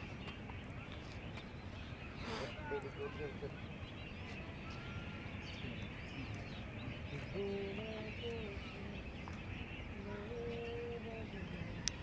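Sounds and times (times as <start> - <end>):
small birds chirping: 0.0 - 12.0
outdoor hiss: 2.2 - 2.6.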